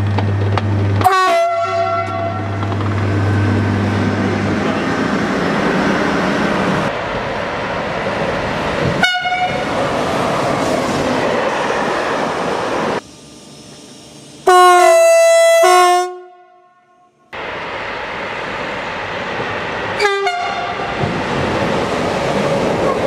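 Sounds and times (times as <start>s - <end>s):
two-tone train horn: 1.0s - 2.6s, 9.0s - 9.6s, 14.4s - 17.2s, 20.0s - 20.9s.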